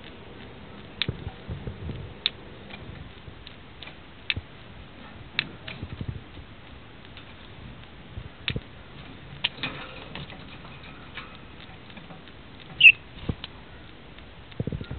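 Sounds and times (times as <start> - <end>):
birds pecking and husking seed: 0.0 - 14.9
high-pitched bird squeak: 12.8 - 13.0.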